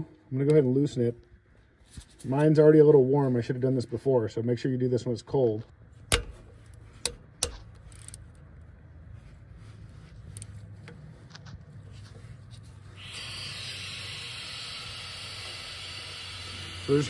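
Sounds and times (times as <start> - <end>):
socket ratchet clicking: 6.1 - 8.3
air hissing out: 12.9 - 17.0.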